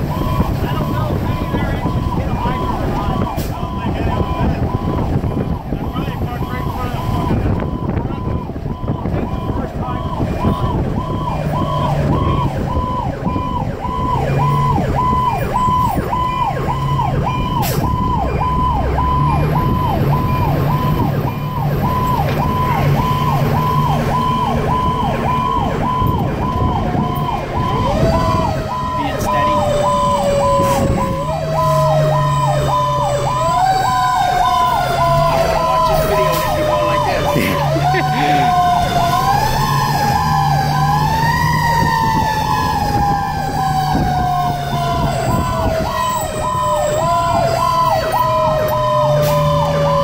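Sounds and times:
fire engine siren yelping: 0.0s - 50.0s
lower siren tone sliding: 0.0s - 50.0s.

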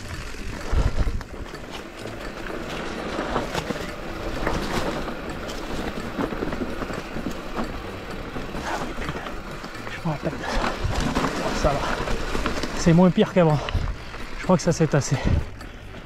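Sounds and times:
bike rattling and knocking: 0.0s - 16.0s
tyres over leaves and stones: 0.0s - 16.0s.

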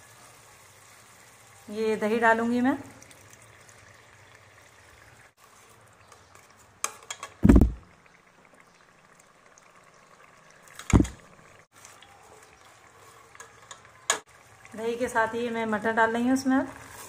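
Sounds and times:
sauce bubbling in pot: 0.1s - 17.0s
loud thumps: 7.4s - 7.8s, 10.9s - 11.2s
spatula stirring: 16.7s - 17.0s.

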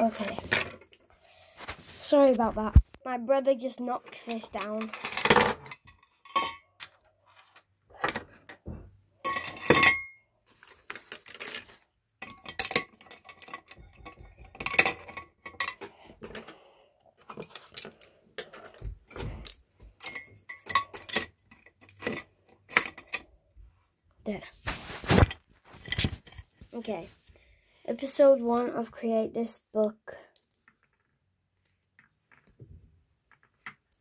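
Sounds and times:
pens and scissors clattering: 0.0s - 1.0s, 3.8s - 8.6s, 9.2s - 23.3s.

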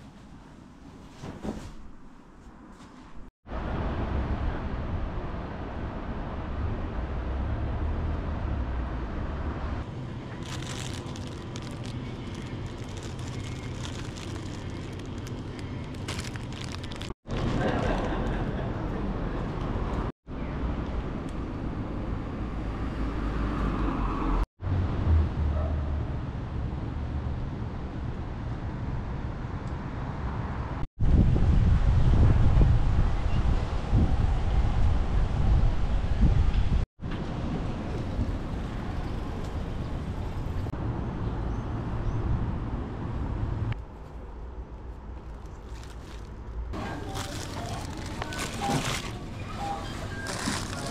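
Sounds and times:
road traffic: 3.5s - 50.9s
wind buffeting microphone: 31.0s - 36.8s.

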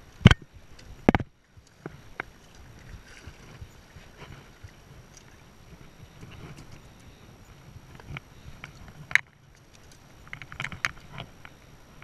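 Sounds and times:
wind: 0.0s - 12.0s
water lapping at rocks: 0.2s - 6.8s.

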